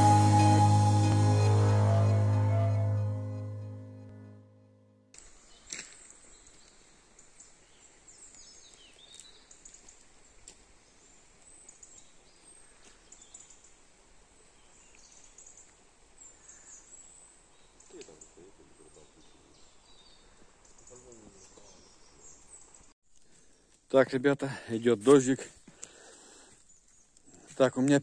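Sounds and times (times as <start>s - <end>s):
electronic intro music: 0.0s - 5.1s
small birds chirping: 5.4s - 13.8s, 14.4s - 23.6s.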